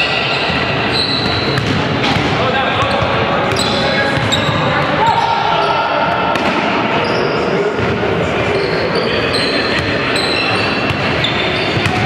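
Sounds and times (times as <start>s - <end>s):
crowd noise: 0.0s - 12.0s
sneaker squeaks on court: 0.1s - 2.2s, 2.8s - 5.4s, 8.5s - 12.0s
ball bouncing: 1.2s - 4.6s, 11.8s - 12.0s.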